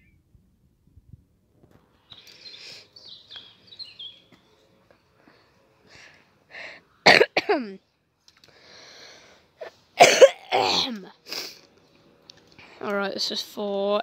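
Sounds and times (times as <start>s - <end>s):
person coughing: 7.0s - 7.7s, 10.0s - 11.0s
person clearing throat: 7.1s - 7.6s, 10.0s - 11.0s.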